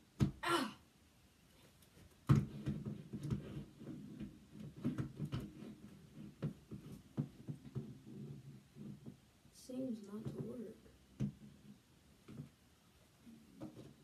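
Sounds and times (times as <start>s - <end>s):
knocks and taps on wall: 0.2s - 0.4s, 2.2s - 9.3s, 10.1s - 12.6s
plastic scraping on wall: 1.6s - 9.4s, 10.1s - 14.0s.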